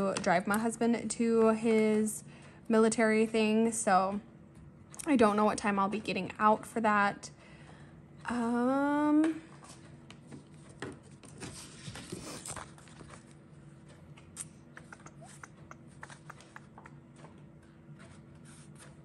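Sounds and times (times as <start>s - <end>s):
paper rustling: 10.4s - 13.4s.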